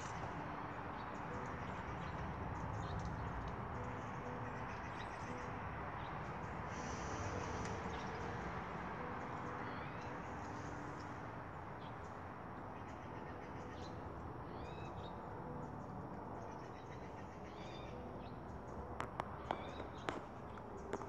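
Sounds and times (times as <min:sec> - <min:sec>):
outdoor background hiss: 0:00.0 - 0:20.8
small birds chirping: 0:00.0 - 0:21.0.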